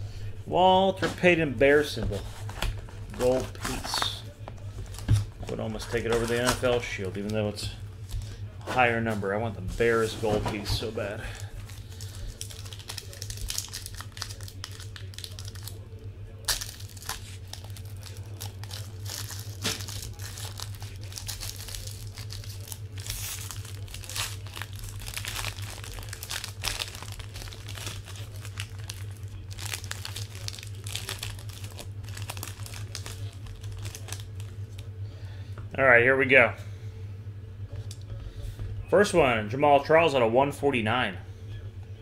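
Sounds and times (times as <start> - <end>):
foil wrapping crinkling and tearing: 1.6 - 7.6, 9.8 - 34.9.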